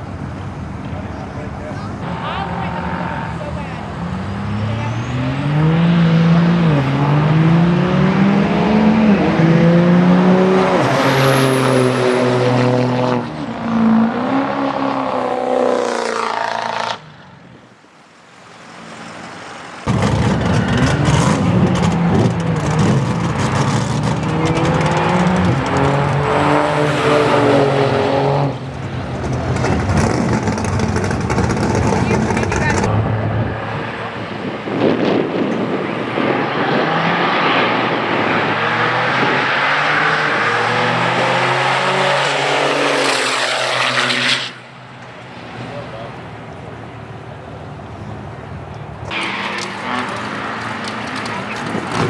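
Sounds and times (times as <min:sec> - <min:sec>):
pickup trucks accelerating hard: 0:19.8 - 0:44.6.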